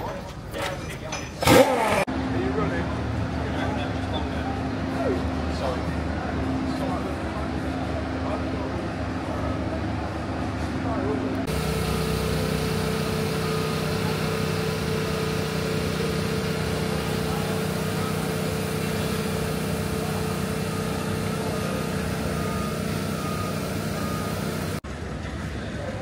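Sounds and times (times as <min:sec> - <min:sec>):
fixed tone: 0:11.5 - 0:24.8
machine humming: 0:11.5 - 0:24.8.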